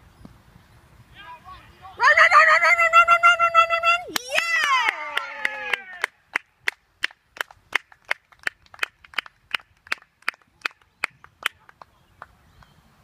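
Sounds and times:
person clapping: 4.1s - 12.4s.

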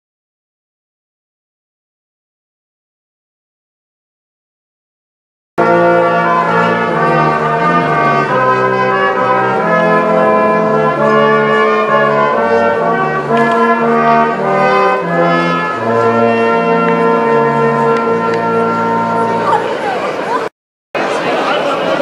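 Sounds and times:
brass ensemble playing chords: 5.6s - 19.7s.

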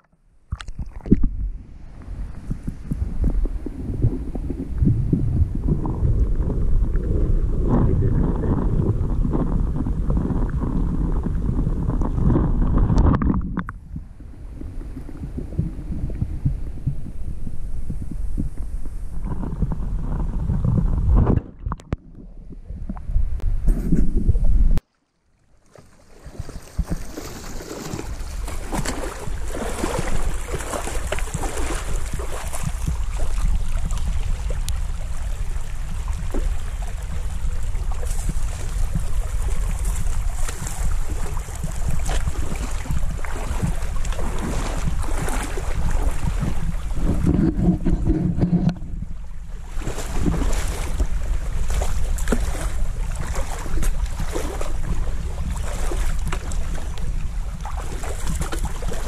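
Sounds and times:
wind rumbling on microphone: 0.4s - 24.8s, 26.2s - 59.0s
rushing river water: 24.8s - 47.6s.

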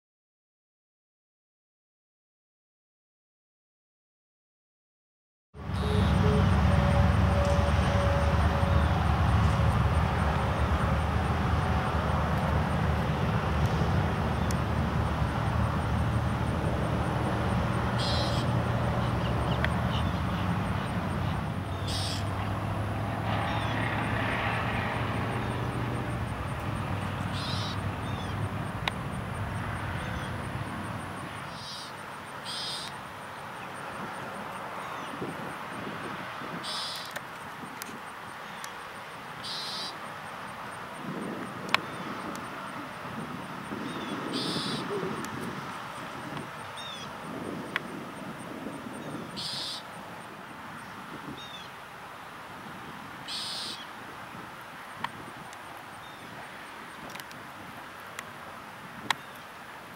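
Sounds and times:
airplane drone: 5.6s - 33.0s
high bird chirps: 18.0s - 20.3s, 21.7s - 22.3s, 27.3s - 28.4s, 32.5s - 33.0s, 39.4s - 40.0s, 43.9s - 45.0s, 49.0s - 49.8s, 53.3s - 53.8s.

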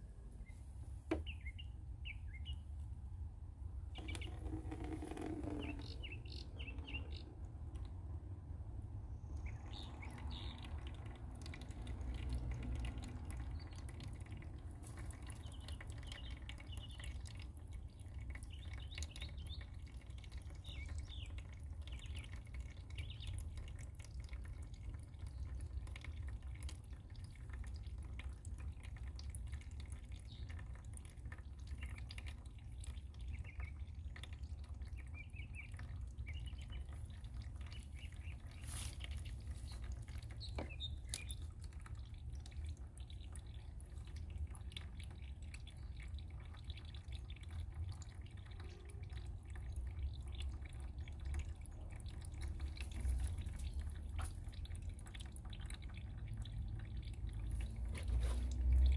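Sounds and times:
liquid dripping into liquid: 3.4s - 58.9s.

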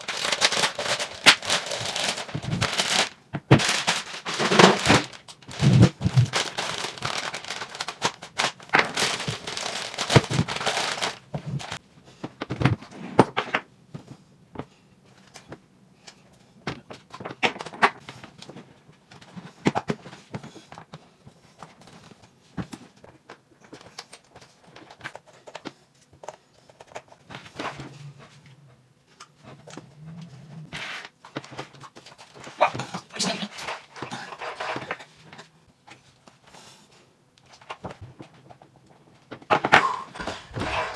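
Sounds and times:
plastic bag crinkling: 0.0s - 11.8s, 40.2s - 40.9s.

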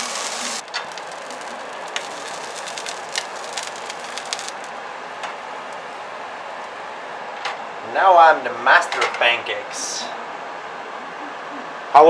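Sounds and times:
batter sizzling in frying pan: 0.0s - 4.8s.

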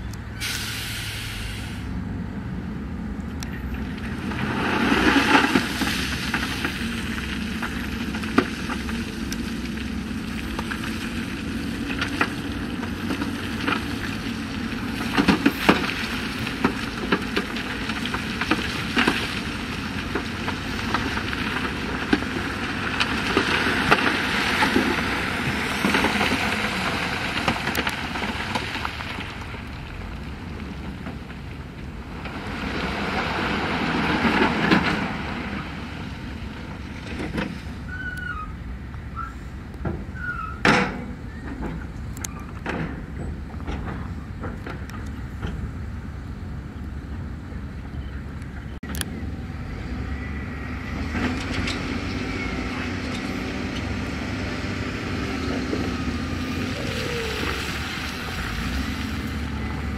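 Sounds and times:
diesel engine running: 0.0s - 38.0s, 41.0s - 59.9s
machinery clanks and knocks: 39.8s - 45.8s.

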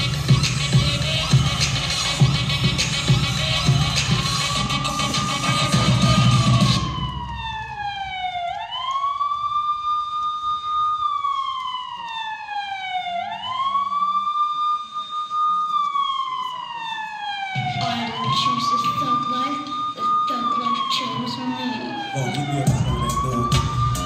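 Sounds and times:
dance music: 0.0s - 8.6s, 16.5s - 24.0s
wailing siren sound effect: 0.0s - 24.0s.

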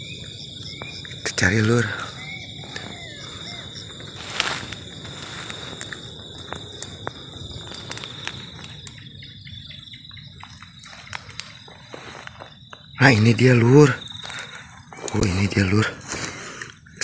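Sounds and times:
insect chorus drone: 0.0s - 17.0s
footsteps crunching through dry brush: 2.2s - 9.0s, 10.2s - 13.0s
twigs snapping: 2.6s - 9.1s, 10.3s - 13.3s.

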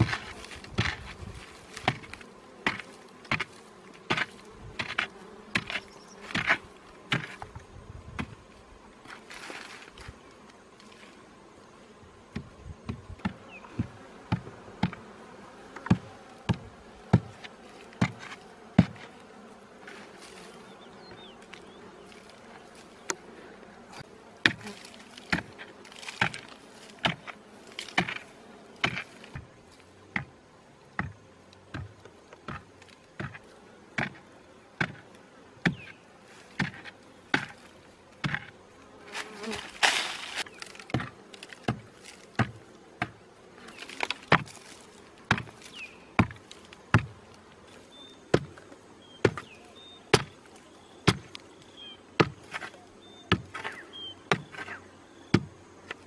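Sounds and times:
digging stick striking earth: 0.0s - 7.4s, 24.4s - 29.5s, 39.2s - 43.2s, 43.8s - 44.7s, 45.3s - 47.2s
loose soil scraping: 0.0s - 11.3s, 12.3s - 30.4s, 31.6s - 54.9s
bees buzzing: 0.0s - 56.0s.

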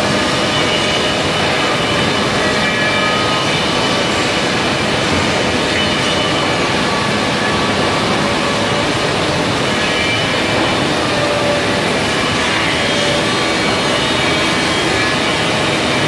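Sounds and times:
hydraulic machinery running: 0.0s - 16.0s.

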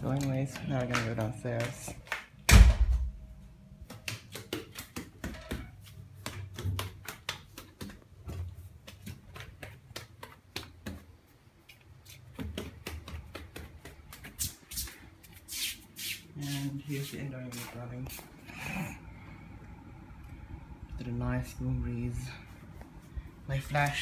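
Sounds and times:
footsteps down stairs: 3.8s - 15.5s.

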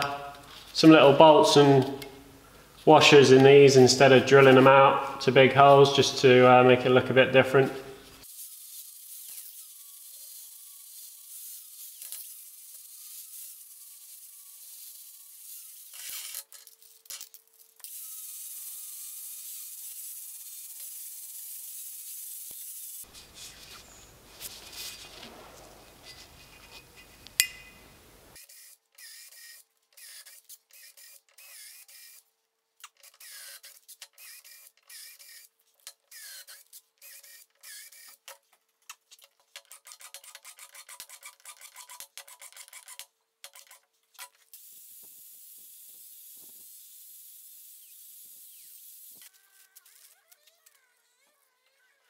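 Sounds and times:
cordless drill drilling metal: 33.0s - 38.3s.

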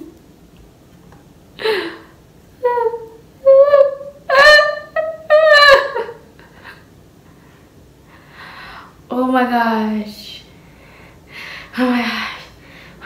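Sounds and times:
girl vocalising ooh notes: 2.6s - 6.0s.

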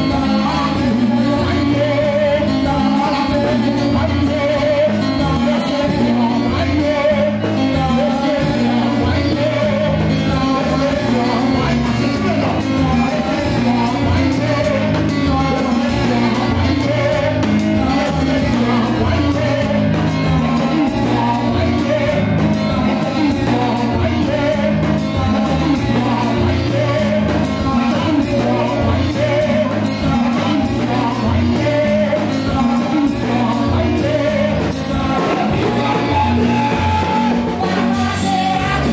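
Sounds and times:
bass line: 0.0s - 38.9s
electronic keyboards playing: 0.0s - 38.9s
voices singing: 0.0s - 38.9s
drum beat: 11.1s - 38.9s.

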